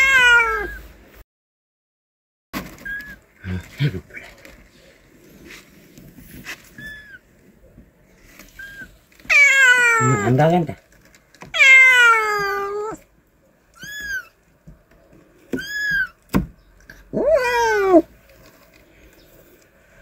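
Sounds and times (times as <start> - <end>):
cat meowing: 0.0 - 0.9, 2.8 - 3.2, 6.7 - 7.2, 8.6 - 10.5, 11.5 - 13.0, 13.7 - 14.4, 15.5 - 16.2, 17.1 - 18.1.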